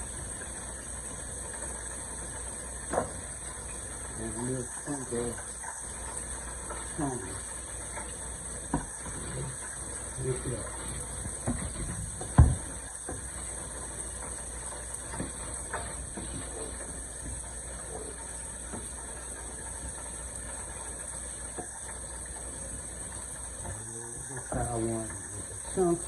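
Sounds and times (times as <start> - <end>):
food sizzling in a pan: 0.0 - 26.0
wooden spoon scraping a pan: 8.8 - 10.0, 10.6 - 12.4.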